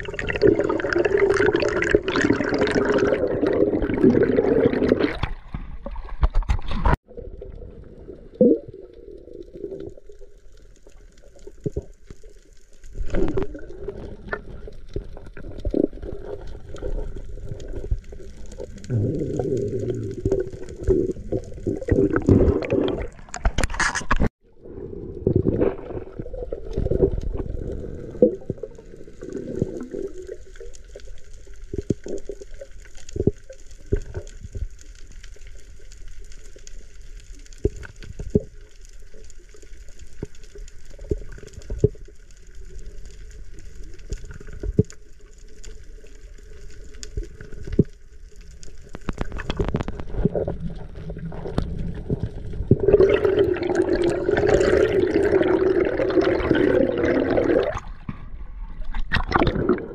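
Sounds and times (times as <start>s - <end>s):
underwater clicks and knocks: 5.0s - 7.0s, 21.8s - 24.3s, 49.0s - 50.6s.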